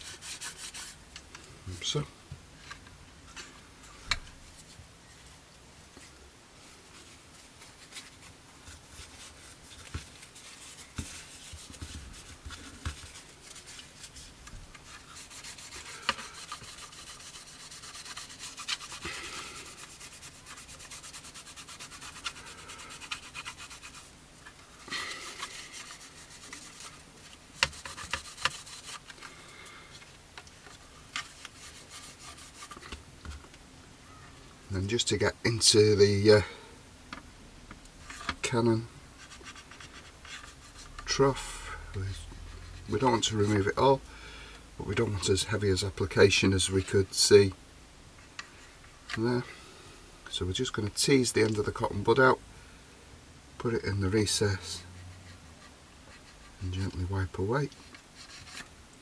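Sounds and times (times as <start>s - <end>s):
paper scrubbing plastic: 0.0s - 1.0s, 7.0s - 29.4s, 30.7s - 33.0s.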